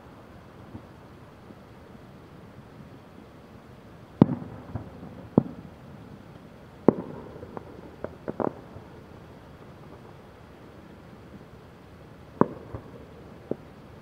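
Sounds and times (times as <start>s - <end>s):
distant firework bangs: 4.2s - 5.7s, 6.8s - 8.9s, 12.4s - 13.6s.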